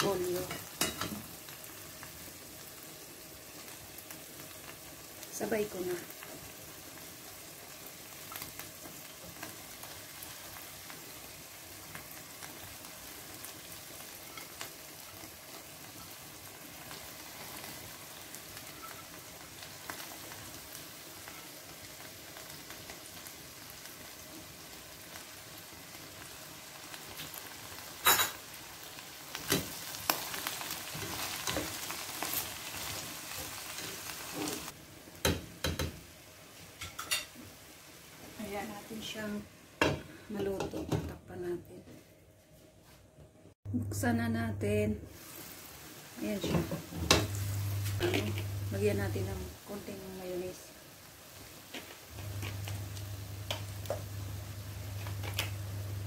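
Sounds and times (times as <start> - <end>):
vegetables sizzling in a pan: 0.0 - 41.6, 44.0 - 56.0
knocks and clatter against pan: 35.2 - 36.0.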